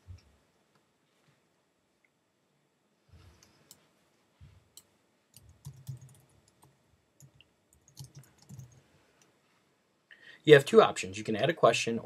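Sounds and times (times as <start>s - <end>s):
keyboard keystrokes: 5.4s - 8.8s.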